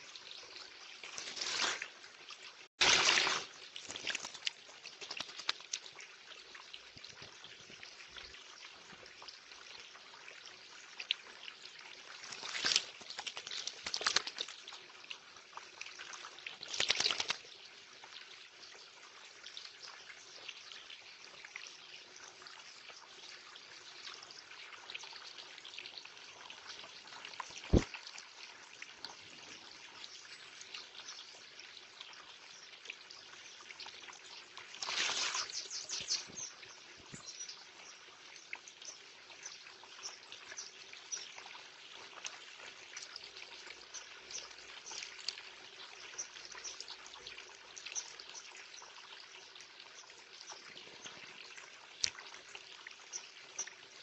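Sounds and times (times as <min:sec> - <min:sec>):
water feature trickling: 0:00.0 - 0:54.0
bird splashing in water: 0:02.8 - 0:05.8, 0:12.2 - 0:14.6, 0:16.6 - 0:17.4, 0:34.8 - 0:35.6.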